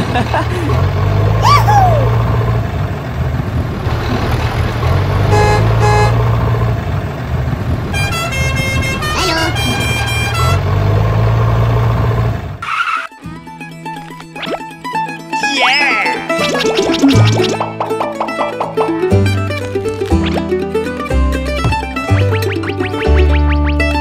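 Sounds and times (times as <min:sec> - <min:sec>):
tractor engine running: 0:00.0 - 0:12.6, 0:16.3 - 0:24.0
short horn beeps: 0:05.3 - 0:06.2, 0:08.0 - 0:10.7
high tones: 0:08.0 - 0:10.9
plucked-string music: 0:13.1 - 0:24.0.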